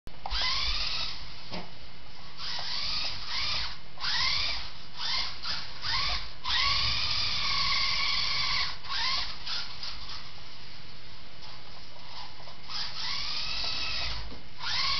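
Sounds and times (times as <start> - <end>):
rc car electric motor whining: 0.3 - 1.2, 2.4 - 10.3, 12.1 - 14.9.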